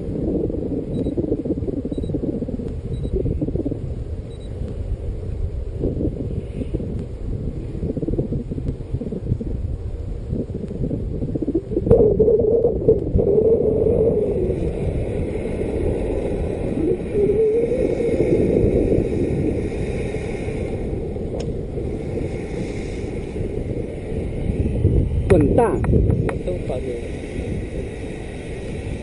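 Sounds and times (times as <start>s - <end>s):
wind rumble on microphone: 0.0s - 29.0s.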